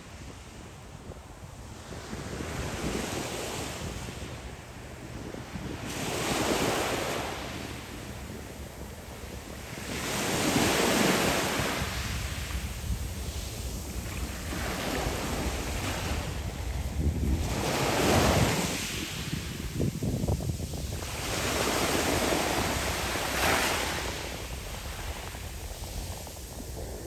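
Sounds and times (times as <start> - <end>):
wind rumbling on microphone: 0.0 - 27.0
waves washing over pebbles: 9.5 - 27.0.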